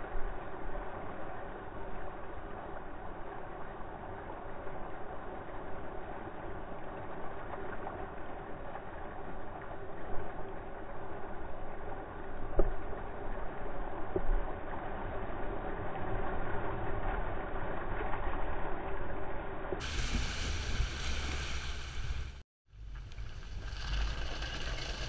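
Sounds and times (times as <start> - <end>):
water rushing and splashing: 19.8 - 22.4.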